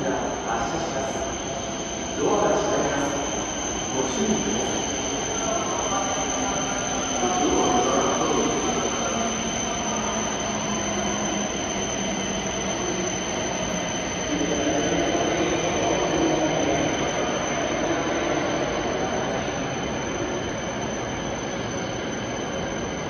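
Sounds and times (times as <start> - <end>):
electric train hum and whine: 0.0 - 23.0.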